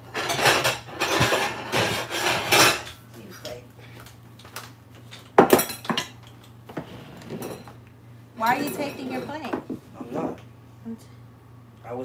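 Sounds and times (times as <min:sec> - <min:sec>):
dishes clattering on table: 0:00.1 - 0:03.0, 0:05.1 - 0:07.8, 0:08.4 - 0:10.4.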